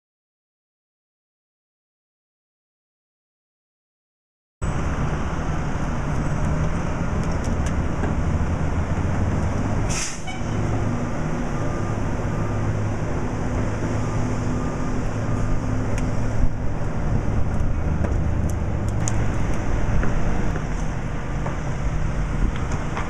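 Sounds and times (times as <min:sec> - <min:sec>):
engine drone: 0:04.6 - 0:23.0
brief hiss: 0:09.9 - 0:10.5.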